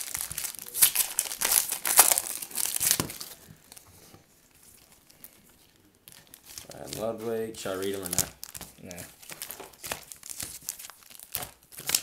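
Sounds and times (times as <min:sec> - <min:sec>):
foil wrapper crinkling and tearing: 0:00.0 - 0:03.4, 0:06.1 - 0:12.0.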